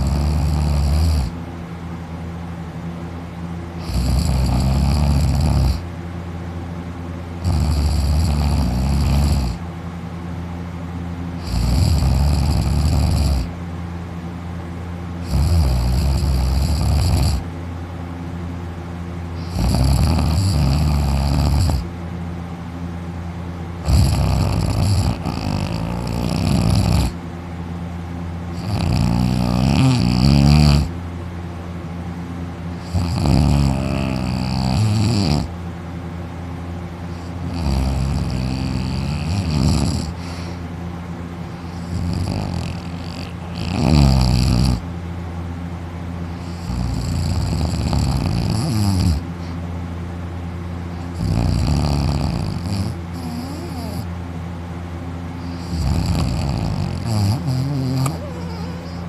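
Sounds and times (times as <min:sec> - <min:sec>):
man snoring loudly: 0:00.0 - 0:01.4, 0:03.8 - 0:05.9, 0:07.4 - 0:09.6, 0:11.4 - 0:13.5, 0:15.2 - 0:17.5, 0:19.4 - 0:21.9, 0:23.8 - 0:27.2, 0:28.5 - 0:30.9, 0:32.8 - 0:35.5, 0:37.1 - 0:40.5, 0:41.6 - 0:44.8, 0:46.3 - 0:49.6, 0:51.0 - 0:54.1, 0:55.4 - 0:59.0.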